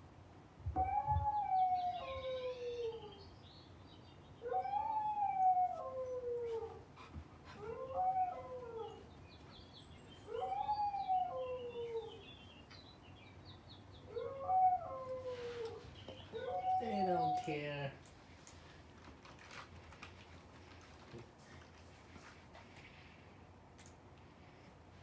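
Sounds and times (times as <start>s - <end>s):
puppy howling: 0.8s - 3.2s, 4.4s - 6.8s, 7.6s - 9.1s, 10.3s - 12.2s, 14.1s - 17.6s.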